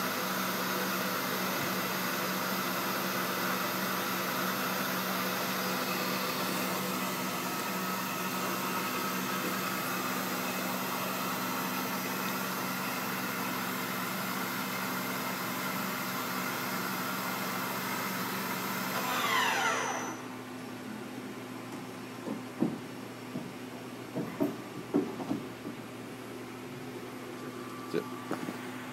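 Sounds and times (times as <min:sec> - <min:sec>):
spindle spinning down whine: 0:18.8 - 0:20.4.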